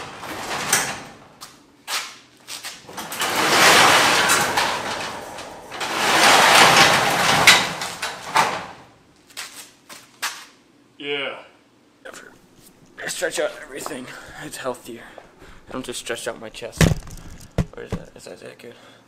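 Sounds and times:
garage door sliding on metal tracks: 0.0s - 1.4s, 2.8s - 9.0s, 15.4s - 18.2s
garage door clacking: 0.0s - 1.5s, 2.8s - 9.0s, 12.9s - 18.2s.

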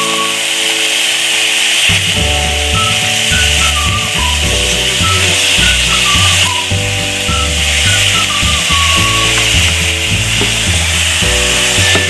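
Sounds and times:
background music with bass line: 1.9s - 12.0s
chicken sizzling in a pot: 4.6s - 12.0s.

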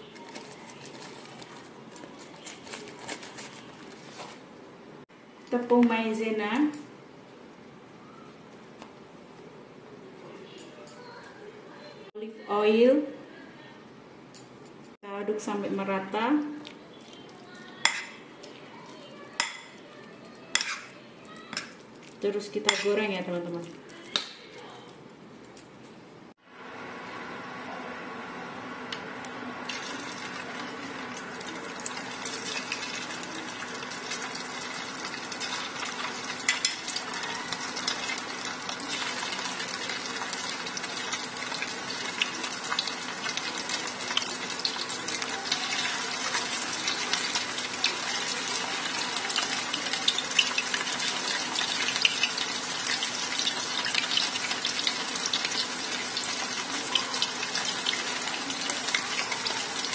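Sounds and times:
oil crackling and popping: 0.0s - 4.4s, 29.6s - 59.9s
chicken sizzling in hot oil: 29.6s - 59.9s.

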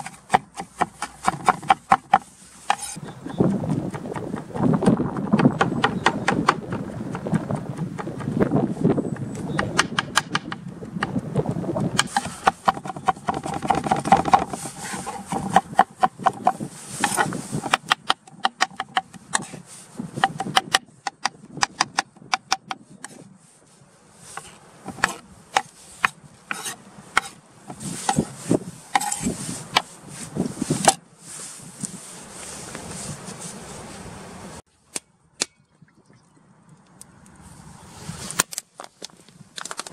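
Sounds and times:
knife chopping on wooden board: 0.0s - 8.2s, 9.6s - 10.6s, 12.0s - 19.6s, 24.9s - 27.4s.

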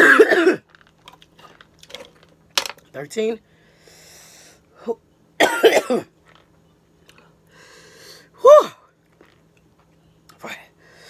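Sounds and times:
woman coughing hard: 0.0s - 0.6s, 5.4s - 6.1s.

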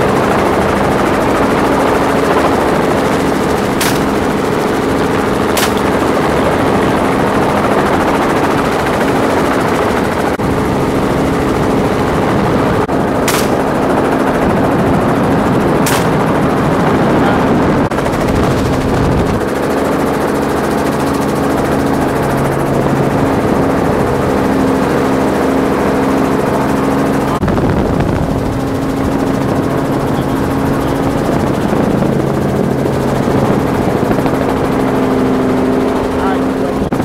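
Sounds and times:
helicopter rotor and engine drone: 0.0s - 37.0s.

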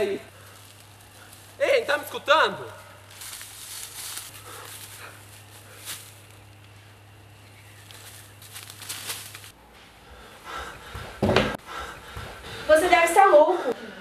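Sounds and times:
footsteps in dry leaves: 0.0s - 9.6s
low hum: 2.7s - 14.0s.

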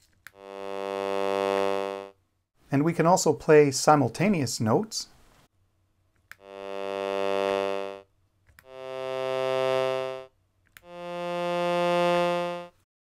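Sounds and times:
sawtooth synth chords: 6.4s - 8.0s, 8.7s - 12.8s.

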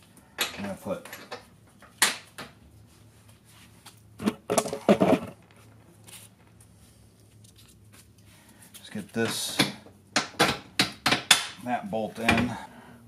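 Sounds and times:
tools clattering and knocking: 0.4s - 2.6s, 4.2s - 5.6s, 9.2s - 11.6s.

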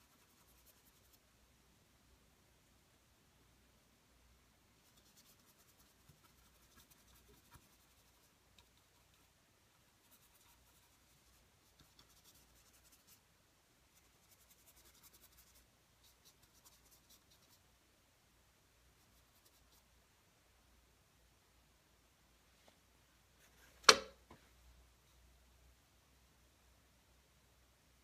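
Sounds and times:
paintbrush scratching on surface: 0.0s - 1.2s, 4.8s - 13.2s, 13.9s - 17.6s, 19.0s - 19.9s
low room tone hum: 0.0s - 28.0s.

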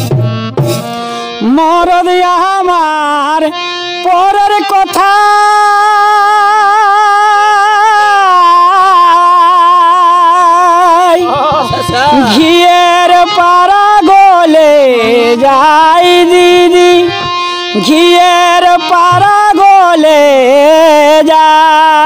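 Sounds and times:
drum strokes: 0.0s - 1.4s, 11.1s - 13.1s
soft harmonium: 0.0s - 22.0s
man singing with vibrato: 0.9s - 22.0s.

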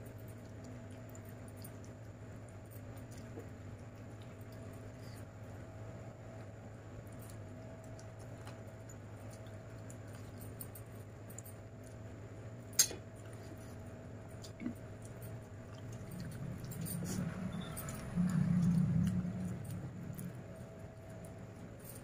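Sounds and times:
chewing: 0.0s - 5.6s, 6.4s - 12.1s, 12.8s - 22.0s.

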